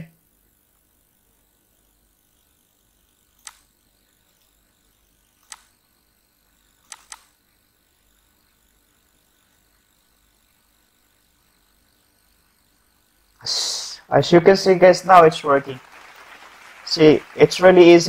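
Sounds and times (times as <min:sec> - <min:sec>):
computer mouse clicking: 0:03.3 - 0:03.7, 0:05.2 - 0:05.8, 0:06.8 - 0:07.4.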